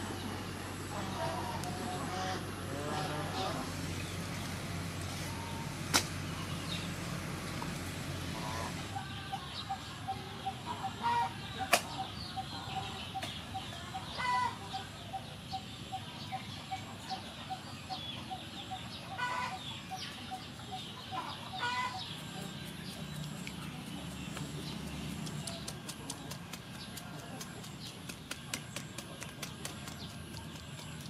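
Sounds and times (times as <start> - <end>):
hen clucking: 8.3 - 15.3, 16.6 - 23.6.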